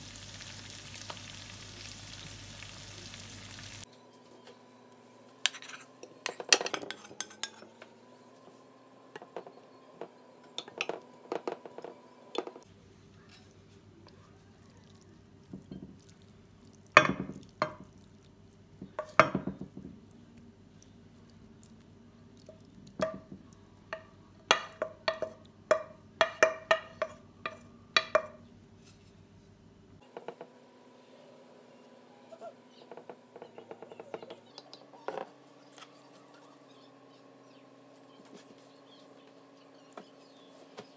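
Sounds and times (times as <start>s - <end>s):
utensil knocking against pan: 24.0s - 28.4s.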